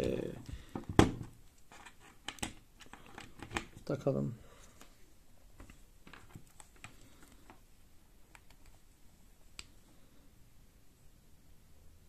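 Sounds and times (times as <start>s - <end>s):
cable and phone clicking: 8.3s - 8.8s.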